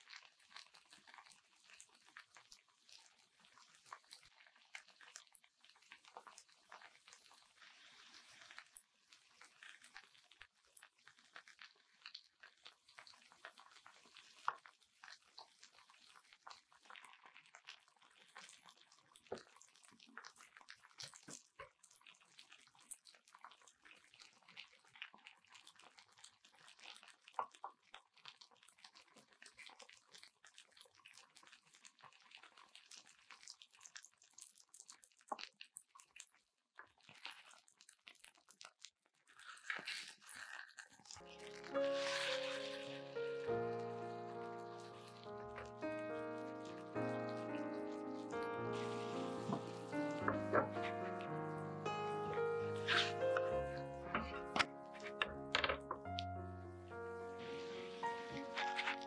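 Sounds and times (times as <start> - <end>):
faint frying crackle: 0.0 - 59.0
spatula clicking and scraping: 52.8 - 53.6.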